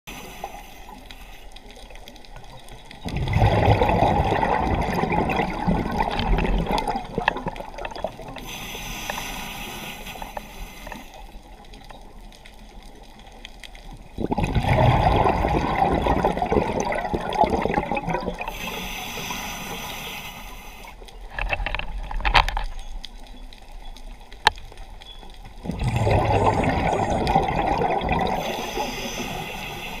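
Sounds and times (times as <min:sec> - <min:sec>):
exhaled bubbles underwater: 0:02.4 - 0:08.5, 0:14.0 - 0:18.8, 0:25.5 - 0:30.0
regulator inhalation hiss: 0:08.4 - 0:11.2, 0:18.5 - 0:21.0, 0:28.4 - 0:30.0.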